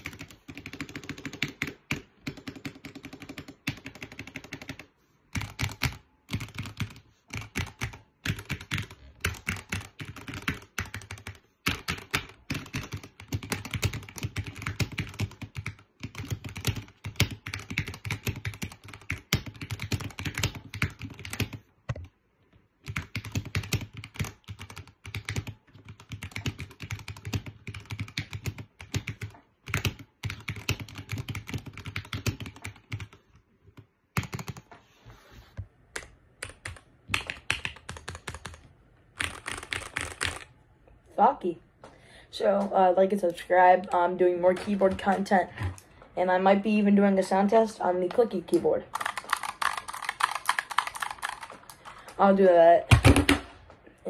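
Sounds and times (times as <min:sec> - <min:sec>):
mechanical keyboard typing: 0:00.0 - 0:22.1, 0:22.8 - 0:33.2, 0:34.2 - 0:34.7, 0:36.0 - 0:40.5, 0:48.1 - 0:52.1.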